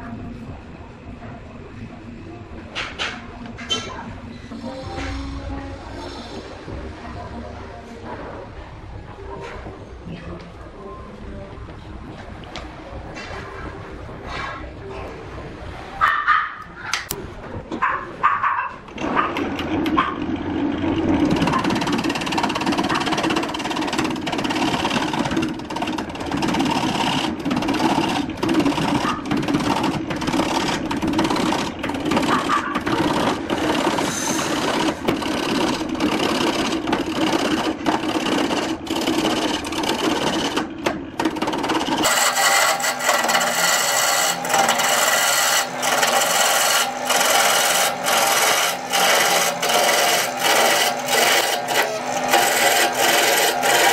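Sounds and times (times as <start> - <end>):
lathe turning tool scraping wood: 19.0 - 53.9.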